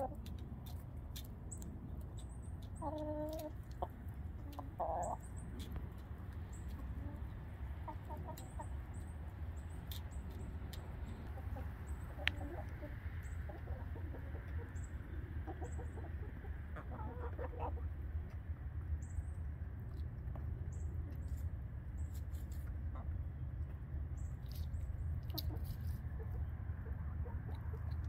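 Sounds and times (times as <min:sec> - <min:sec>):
hens clucking: 0:00.0 - 0:18.5, 0:19.9 - 0:28.0.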